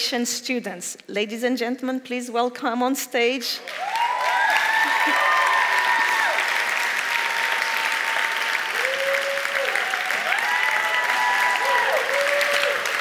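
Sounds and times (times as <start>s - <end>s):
large audience applauding: 3.6s - 13.0s.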